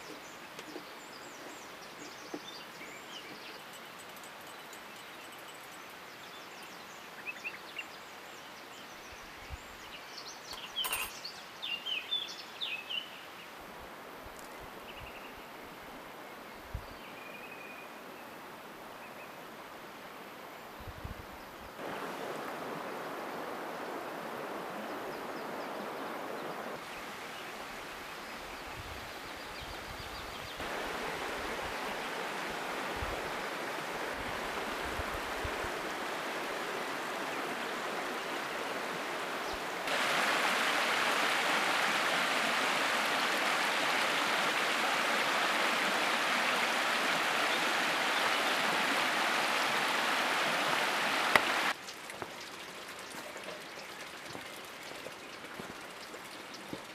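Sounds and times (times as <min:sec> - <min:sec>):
stream running over stones: 0:00.0 - 0:16.2, 0:21.7 - 0:56.9.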